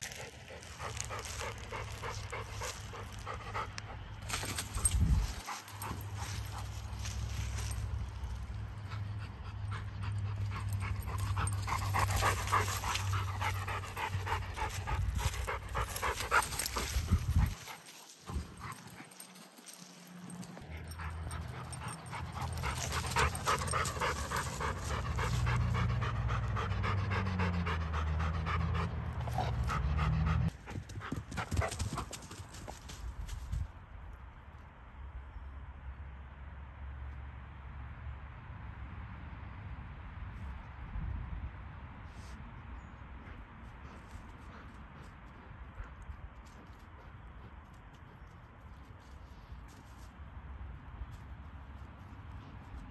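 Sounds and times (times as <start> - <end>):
dog panting: 0.1 - 7.0, 8.8 - 32.2, 43.2 - 48.2.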